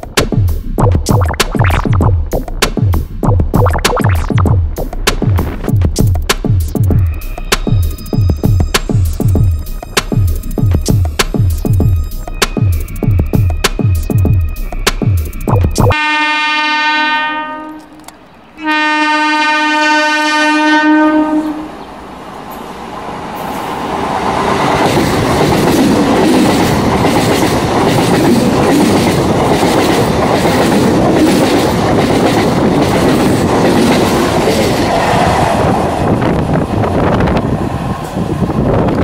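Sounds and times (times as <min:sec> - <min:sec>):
train wheels rumbling on rails: 0:04.8 - 0:15.9, 0:21.0 - 0:39.0
train horn blasts: 0:15.9 - 0:17.9, 0:18.6 - 0:21.7.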